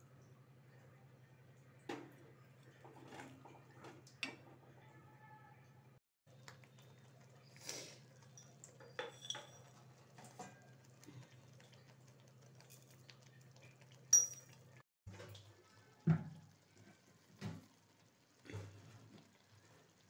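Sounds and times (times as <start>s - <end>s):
metal skimmer clinking in iron pot: 8.3s - 10.6s, 14.1s - 14.8s.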